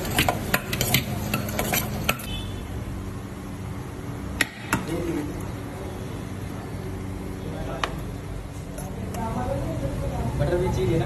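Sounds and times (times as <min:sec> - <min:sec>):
metal spoon scraping steel bowl: 0:00.0 - 0:02.4.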